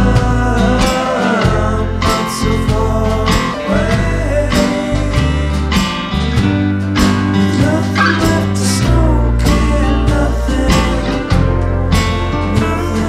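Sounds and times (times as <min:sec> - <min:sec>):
band playing rock music: 0:00.0 - 0:13.0
person singing: 0:07.5 - 0:11.5.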